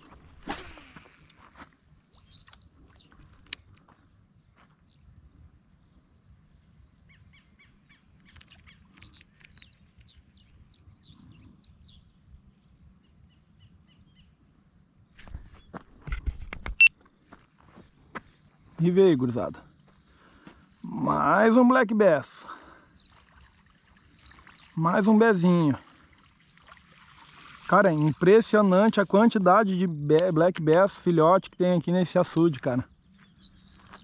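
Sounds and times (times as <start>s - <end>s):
bird chirps: 2.2s - 3.3s, 7.0s - 17.0s, 22.6s - 25.0s, 32.9s - 34.0s
sharp click: 30.1s - 30.9s.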